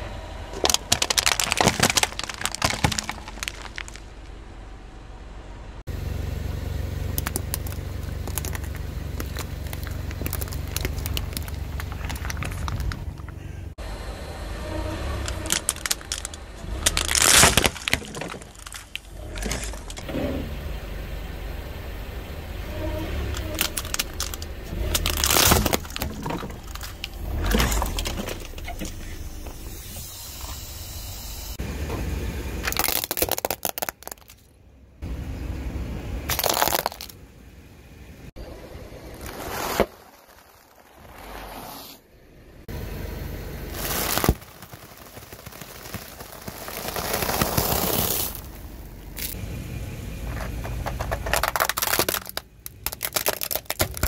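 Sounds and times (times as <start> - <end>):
car low rumble: 0.0 - 54.0
plastic crunching under tyre: 0.5 - 4.4, 7.0 - 13.8, 15.2 - 20.4, 22.8 - 29.7, 32.6 - 34.5, 36.3 - 37.2, 39.0 - 41.6, 43.6 - 49.4, 50.2 - 54.0.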